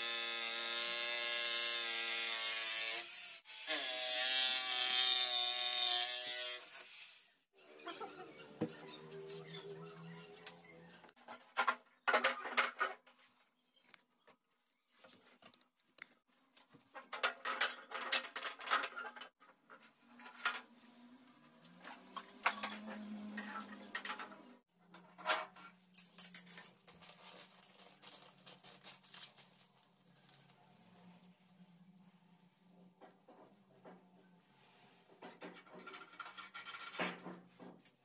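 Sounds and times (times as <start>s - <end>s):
plastic bag crinkling: 26.8s - 30.7s.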